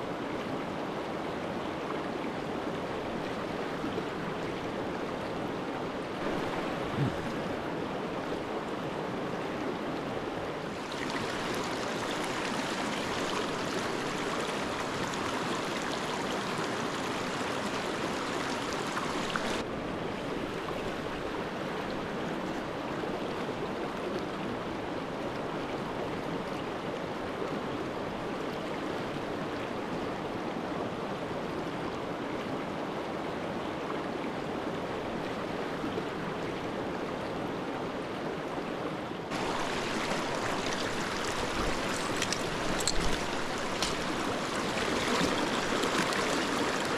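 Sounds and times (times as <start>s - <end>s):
creek water flowing over stones: 0.1s - 29.2s, 39.3s - 46.9s.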